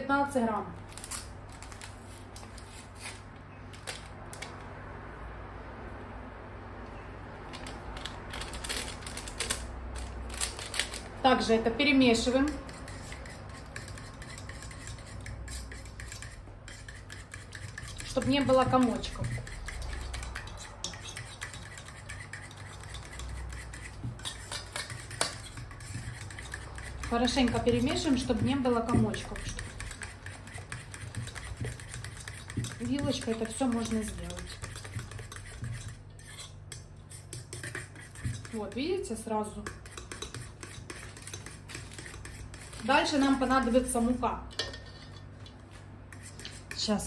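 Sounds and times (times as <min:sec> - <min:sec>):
fork clinking and scraping bowl: 0:12.1 - 0:38.8, 0:39.6 - 0:46.9.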